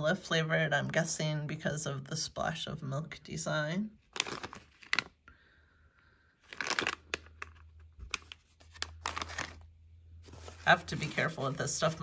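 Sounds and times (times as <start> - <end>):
plastic snack bag crinkling: 4.0 - 5.2, 6.4 - 11.6.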